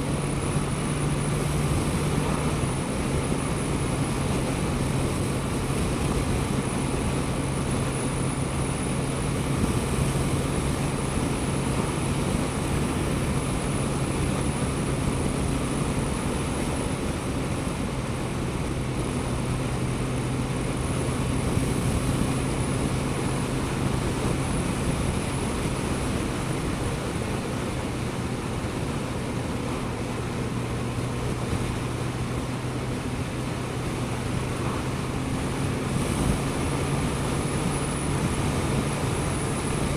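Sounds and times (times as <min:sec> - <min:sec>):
motorcycle engine cruising: 0:00.0 - 0:28.0
steady rushing noise: 0:00.0 - 0:39.9.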